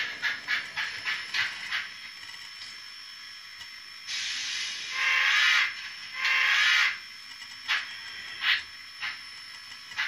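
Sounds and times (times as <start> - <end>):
steam hiss from small speaker: 2.7 - 10.0.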